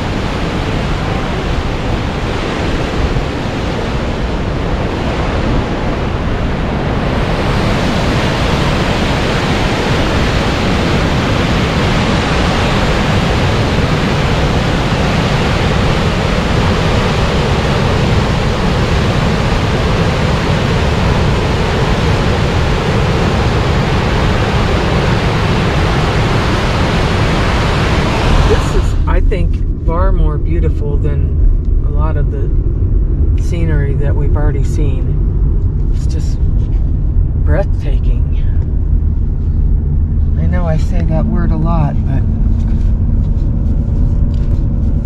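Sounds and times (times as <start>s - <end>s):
waterfall rushing: 0.0s - 29.2s.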